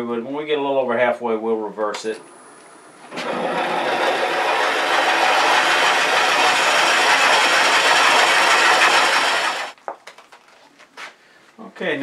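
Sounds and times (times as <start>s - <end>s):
drill bit grinding into wood: 3.1s - 9.8s.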